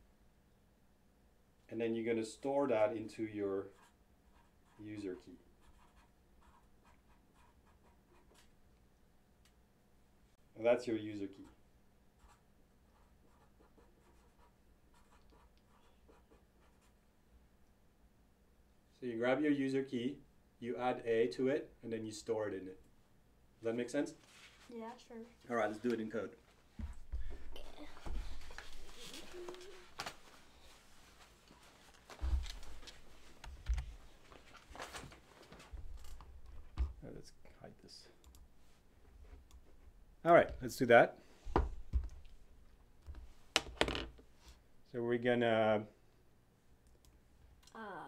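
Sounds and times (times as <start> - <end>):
marker scratching on paper: 12.2 - 17.0.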